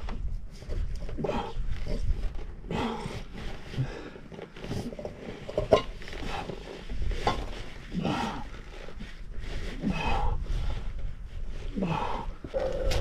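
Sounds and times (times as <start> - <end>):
man grunting and breathing hard: 11.7 - 13.0.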